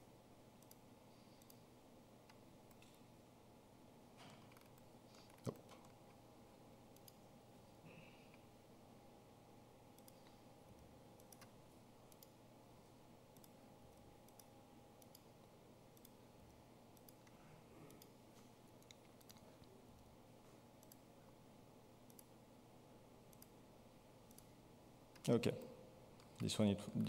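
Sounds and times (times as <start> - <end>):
low room hum: 0.0 - 27.0
computer mouse clicks: 0.6 - 0.8, 1.4 - 1.6, 2.3 - 3.0, 4.2 - 6.0, 6.9 - 7.2, 10.0 - 10.4, 11.2 - 12.4, 13.3 - 13.6, 14.2 - 15.3, 16.0 - 16.2, 16.9 - 18.2, 18.8 - 19.5, 20.8 - 21.0, 22.1 - 22.3, 23.3 - 23.5, 24.3 - 24.5.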